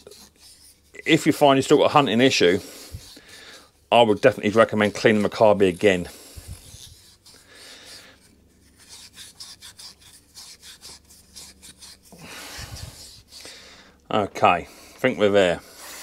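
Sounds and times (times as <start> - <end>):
wire wool scrubbing metal: 0.0 - 13.6.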